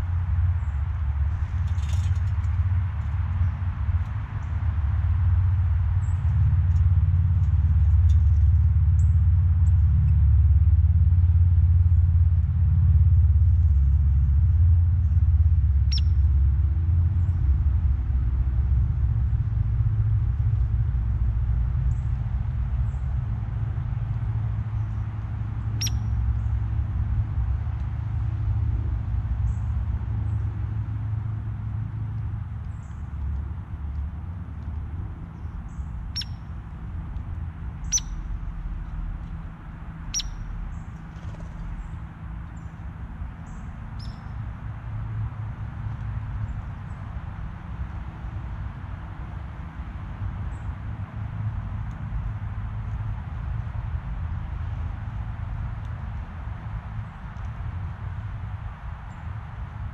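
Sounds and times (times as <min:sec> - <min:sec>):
steady low rumble: 0:00.0 - 0:59.9
bird chirp: 0:15.0 - 0:16.4, 0:24.5 - 0:26.6, 0:34.6 - 0:36.8, 0:37.7 - 0:44.5
bird high calls: 0:15.8 - 0:16.2, 0:25.8 - 0:26.2, 0:35.4 - 0:36.5, 0:37.8 - 0:38.4, 0:40.0 - 0:41.9, 0:43.4 - 0:44.4.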